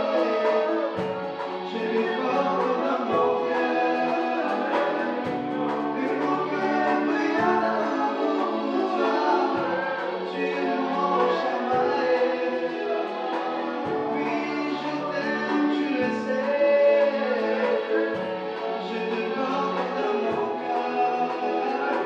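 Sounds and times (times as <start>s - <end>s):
keyboard accompaniment: 0.0s - 22.0s
voices singing gospel: 0.0s - 22.0s.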